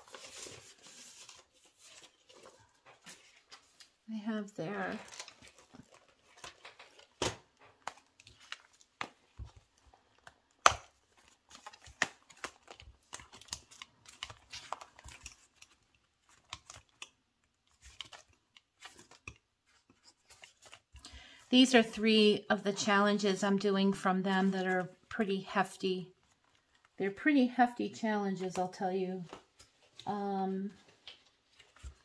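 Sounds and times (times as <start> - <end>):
paper rustling and crinkling: 0.0 - 4.1, 4.7 - 21.8, 30.7 - 32.0.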